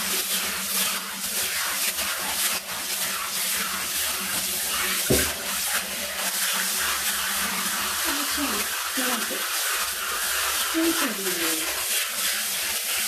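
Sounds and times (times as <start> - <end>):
shower water spraying: 0.0 - 13.0
short thump: 5.1 - 5.4.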